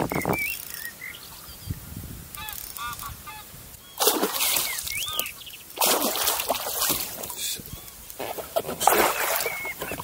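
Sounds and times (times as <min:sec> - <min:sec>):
geese honking: 0:02.4 - 0:03.5
fish thrashing and splashing: 0:04.0 - 0:07.4, 0:08.2 - 0:10.0.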